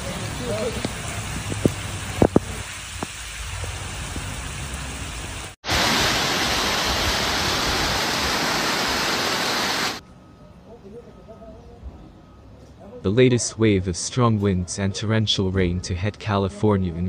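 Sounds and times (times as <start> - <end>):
floodwater rushing down channel: 0.0 - 10.0
steady rain: 0.0 - 10.0.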